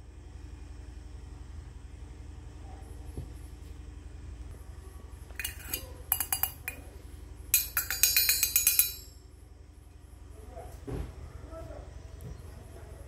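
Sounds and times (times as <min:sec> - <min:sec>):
small steel pot and lid clinking: 0:05.3 - 0:06.8, 0:07.6 - 0:09.2.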